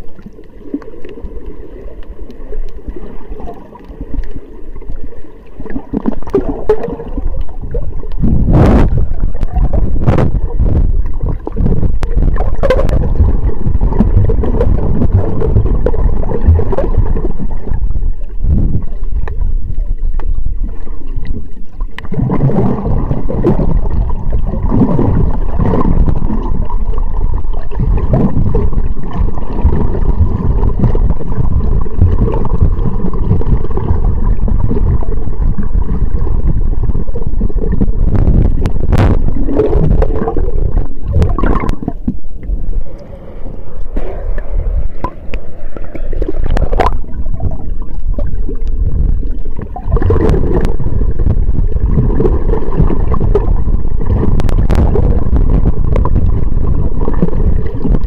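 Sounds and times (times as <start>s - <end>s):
underwater rumble and gurgling: 0.0s - 58.0s
water splashes: 0.0s - 58.0s.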